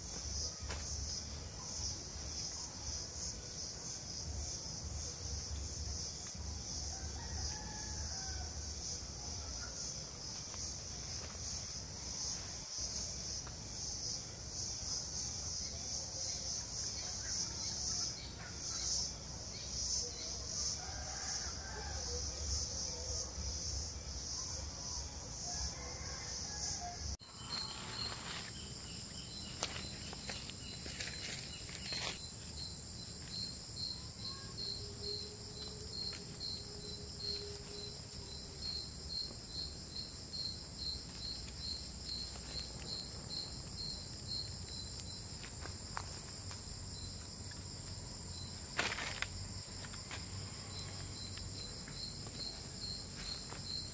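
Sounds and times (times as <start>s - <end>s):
high insect drone with chirps: 0.0s - 53.9s
insects trilling: 0.0s - 53.9s.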